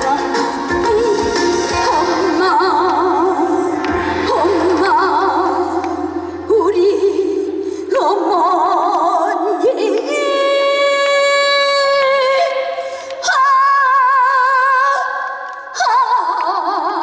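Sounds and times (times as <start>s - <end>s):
backing music: 0.0s - 8.7s
woman singing with vibrato: 0.0s - 17.0s.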